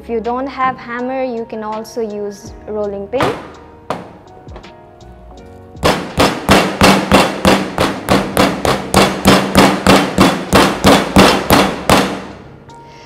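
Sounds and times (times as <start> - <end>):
meat mallet pounding: 3.2 - 4.3, 5.8 - 12.5.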